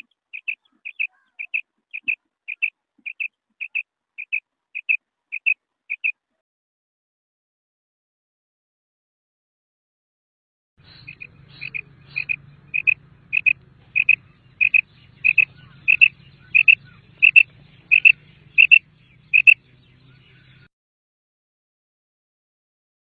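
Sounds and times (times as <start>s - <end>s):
quail calling: 0.0s - 6.2s, 10.8s - 20.7s
faint low hum: 10.8s - 20.7s.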